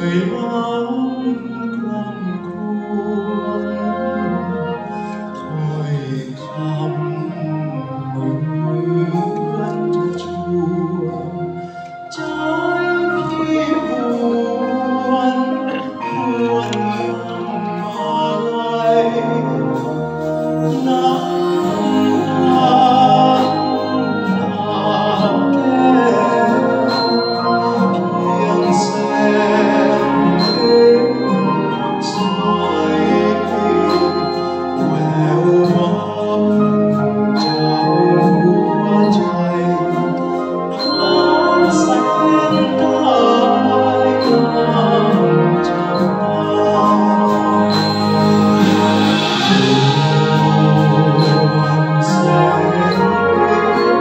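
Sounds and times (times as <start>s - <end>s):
wind band playing: 0.0s - 54.0s
singers singing through microphones: 12.1s - 54.0s.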